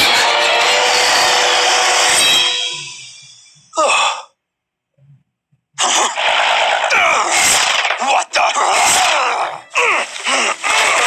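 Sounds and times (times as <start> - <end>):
action music and effects: 0.0 - 3.7, 5.8 - 11.0
clamour with groaning voices: 5.8 - 11.0.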